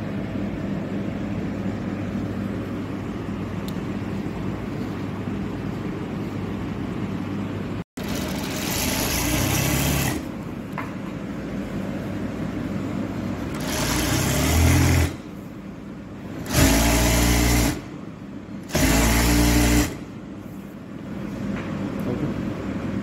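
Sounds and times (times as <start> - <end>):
sewing machine stitching: 8.0 - 10.3, 13.5 - 15.3, 16.4 - 17.9, 18.6 - 20.1
sewing machine humming: 8.0 - 10.6, 13.1 - 15.6, 16.2 - 20.2.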